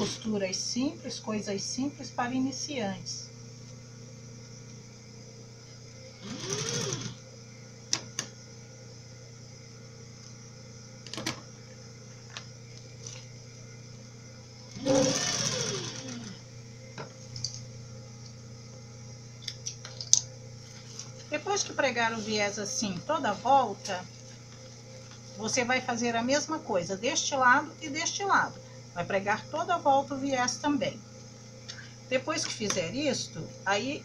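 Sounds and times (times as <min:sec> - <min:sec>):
sewing machine stitching: 0:00.0 - 0:00.3, 0:06.2 - 0:07.2, 0:14.7 - 0:16.4
steady low hum: 0:00.0 - 0:34.0.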